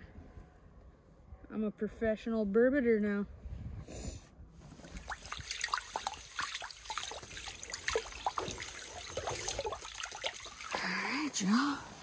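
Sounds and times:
water and slush splashing: 4.7 - 12.0
bubbling drips: 4.8 - 11.4.

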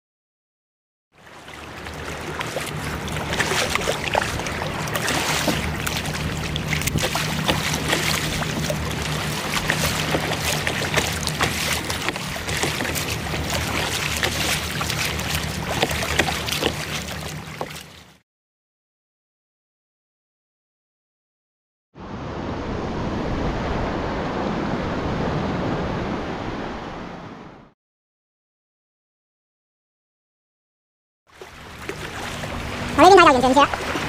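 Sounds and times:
water splashing against kayak hull: 1.2 - 18.2, 31.3 - 34.0
wind rumble on microphone: 1.9 - 16.5, 22.0 - 27.7.

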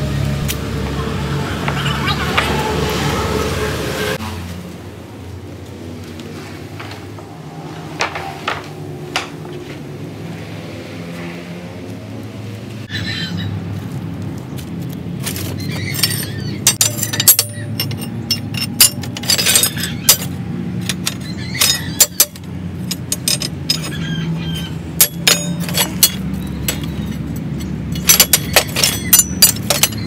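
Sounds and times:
scrap metal clinking: 15.3 - 30.0.

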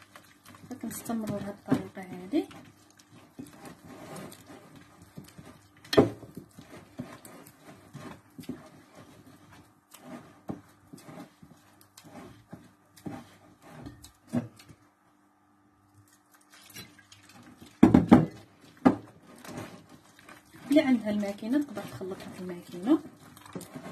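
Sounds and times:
dough slapping and squelching: 0.0 - 14.8, 16.0 - 23.9
dough thump: 17.8 - 19.1.

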